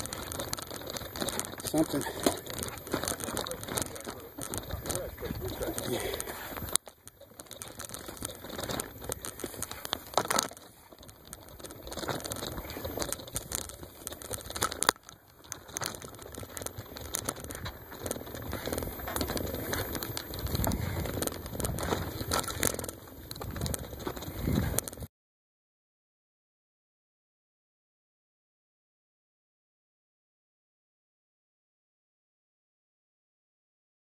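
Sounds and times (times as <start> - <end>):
bike clattering and rattling: 0.0 - 25.1
tyres crackling through dry grass: 0.0 - 25.1.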